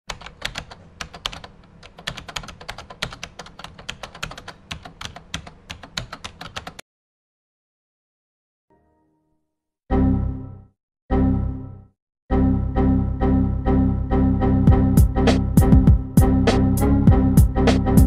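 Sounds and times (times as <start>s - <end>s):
computer keyboard typing: 0.1s - 6.8s.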